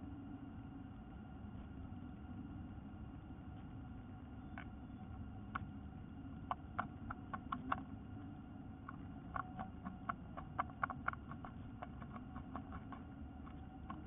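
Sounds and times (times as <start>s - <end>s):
steady low hum: 0.0s - 14.0s
bird scratching in dry nest: 8.8s - 14.0s.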